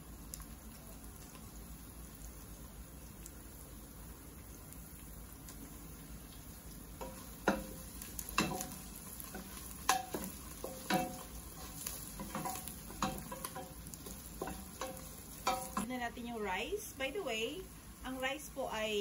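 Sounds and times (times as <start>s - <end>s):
onions sizzling in pot: 0.0s - 19.0s
spoon knocking metal pot: 14.4s - 15.9s.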